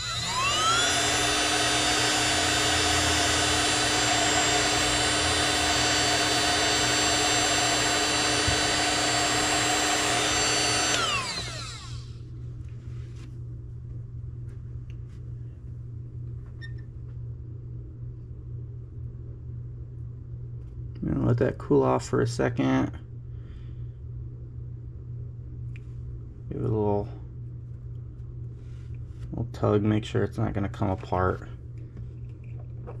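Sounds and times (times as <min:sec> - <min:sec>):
heat gun fan whining: 0:00.0 - 0:13.3.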